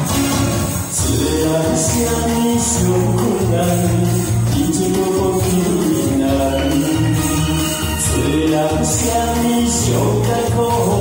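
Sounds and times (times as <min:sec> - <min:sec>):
amplified backing track: 0:00.0 - 0:11.0
tambourine jingles: 0:00.0 - 0:11.0
man singing into microphone: 0:00.9 - 0:11.0.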